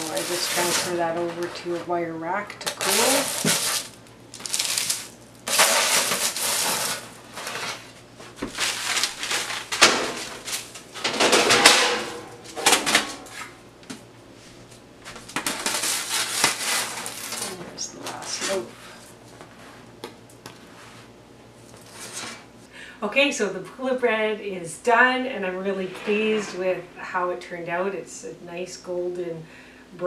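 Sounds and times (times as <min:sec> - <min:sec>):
metal spatula scraping: 0:00.0 - 0:01.8, 0:25.3 - 0:27.7
parchment paper rustling: 0:00.0 - 0:02.0, 0:02.6 - 0:10.8, 0:15.1 - 0:19.9.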